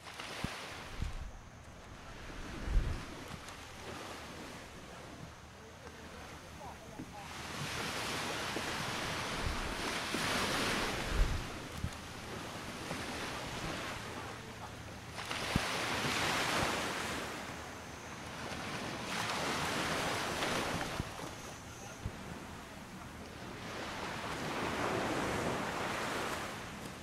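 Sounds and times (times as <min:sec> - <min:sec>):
wind on microphone: 0:00.0 - 0:05.4, 0:07.0 - 0:14.5
small waves washing onto beach: 0:00.0 - 0:27.0.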